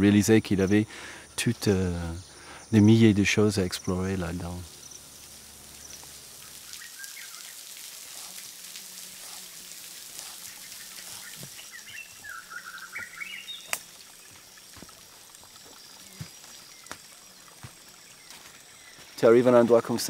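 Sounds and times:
insect tones: 0.0s - 20.0s
running water hiss: 0.0s - 20.0s
chirping calls: 10.2s - 14.4s
sharp clicks: 13.7s - 13.9s.

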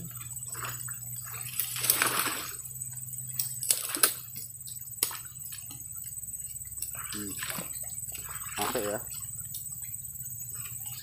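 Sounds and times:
water splashing: 0.0s - 2.7s, 3.6s - 4.3s, 6.9s - 9.2s.

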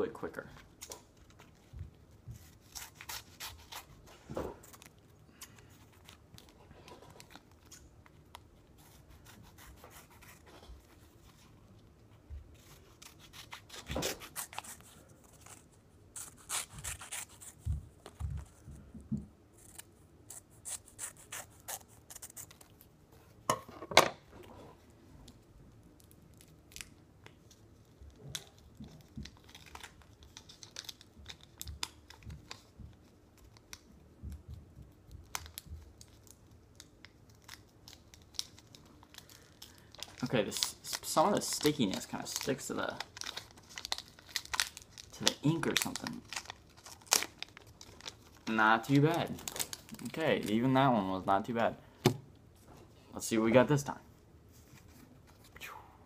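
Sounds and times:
scissors snipping paper: 16.2s - 18.2s
wrapper rubbing and tearing: 36.0s - 50.7s.

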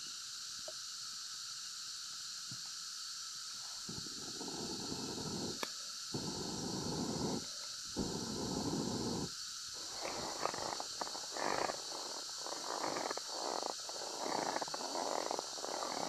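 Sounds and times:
breath blown into fire: 4.0s - 5.6s, 6.2s - 7.4s, 8.0s - 9.3s.

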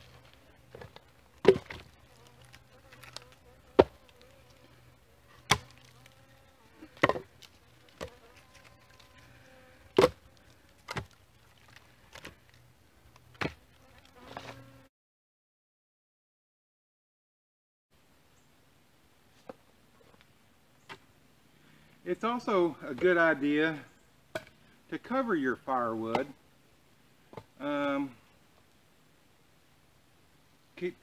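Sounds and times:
faint steady buzz: 0.0s - 14.9s
firewood knocking on wood: 3.8s - 4.0s, 7.0s - 7.3s.

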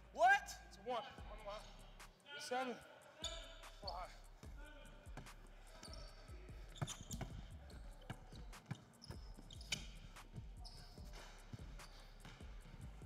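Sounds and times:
basketball bouncing on hardwood: 6.5s - 13.0s.

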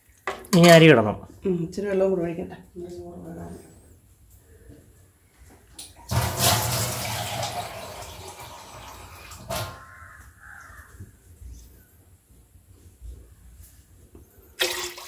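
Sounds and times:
tap water running into vessel: 6.1s - 9.7s.

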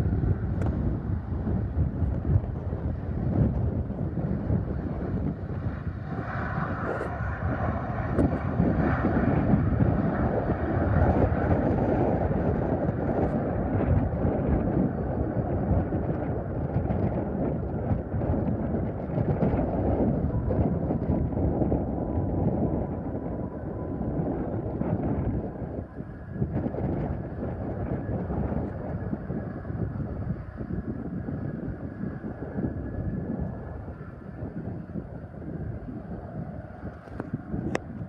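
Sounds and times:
distant jet engines roaring: 0.0s - 38.0s
wind buffeting microphone: 0.0s - 38.0s.

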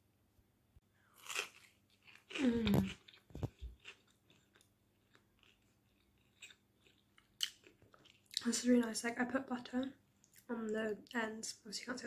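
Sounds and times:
crunchy bite of toast: 1.1s - 8.3s
soft chewing clicks: 1.2s - 9.0s, 10.2s - 11.2s.

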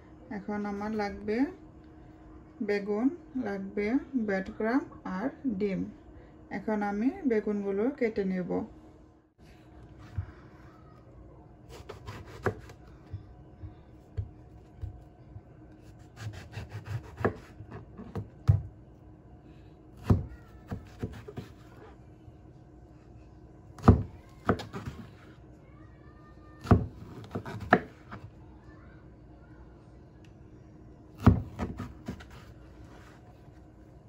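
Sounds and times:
knife slicing through eggplant: 11.7s - 12.8s, 15.8s - 18.3s.

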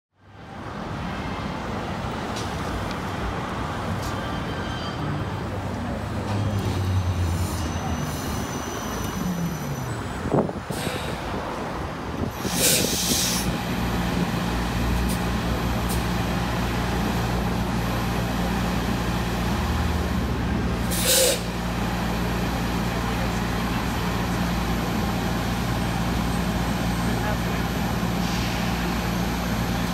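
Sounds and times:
standing bus humming: 5.1s - 29.9s
air-brake hiss: 10.7s - 11.4s, 12.4s - 13.6s, 20.8s - 21.5s, 28.1s - 29.3s.

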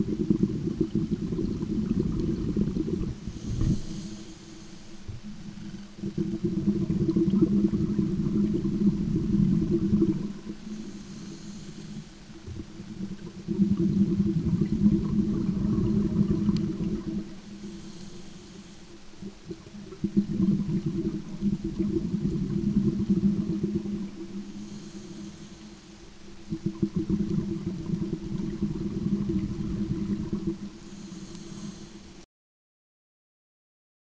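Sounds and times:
diver breathing underwater: 0.0s - 32.2s
underwater bubbling from exhaled air: 0.0s - 32.2s.

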